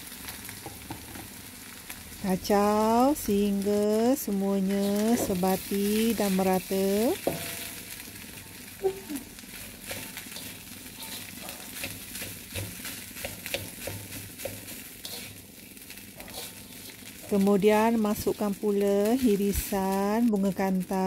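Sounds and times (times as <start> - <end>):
rice sizzling in a wok: 0.0 - 21.0
spatula scraping a wok: 4.7 - 8.7, 9.4 - 17.5.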